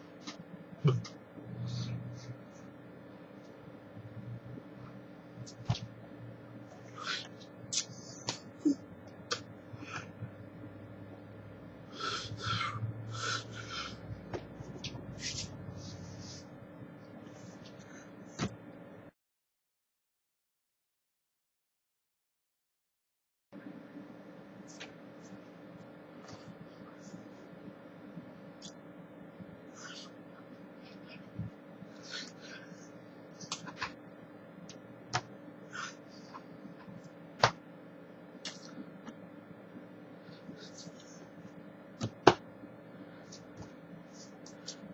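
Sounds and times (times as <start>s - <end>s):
low voiced hum: 0.0s - 18.6s, 23.6s - 44.9s
breath and mouth noises: 6.8s - 10.2s, 29.7s - 34.0s.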